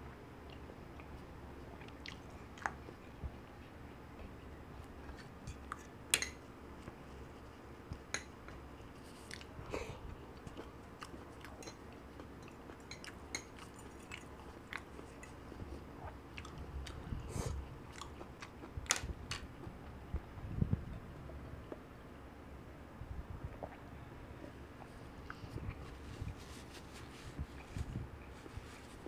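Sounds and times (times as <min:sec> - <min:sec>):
wet chewing and lip smacks: 0:00.4 - 0:03.1, 0:07.9 - 0:09.5, 0:10.4 - 0:17.0.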